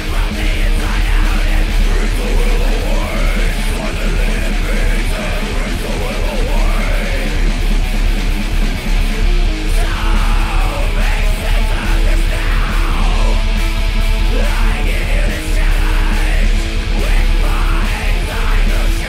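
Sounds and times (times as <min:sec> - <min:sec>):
loud hard rock music: 0:00.0 - 0:19.0.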